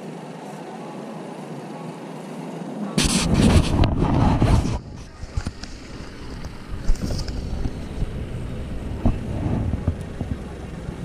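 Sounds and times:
outboard motors rumbling: 0.0s - 11.0s
wind on microphone: 3.0s - 11.0s.

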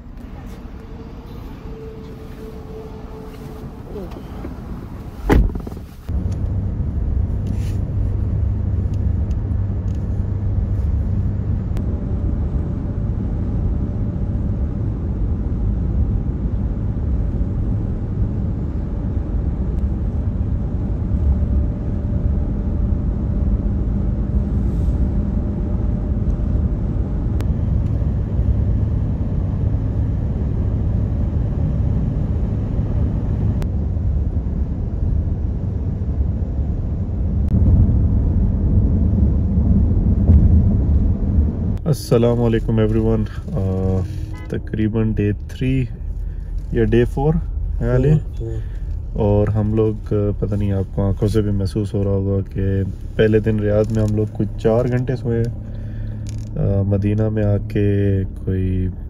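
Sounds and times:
car engine and road noise: 0.0s - 59.0s
car door thud: 5.2s - 5.9s.

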